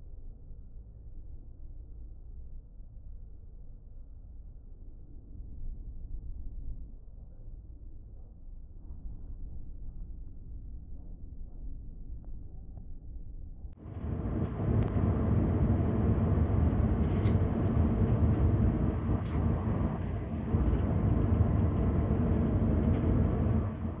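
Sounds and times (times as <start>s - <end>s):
train running rumble: 13.8s - 24.0s.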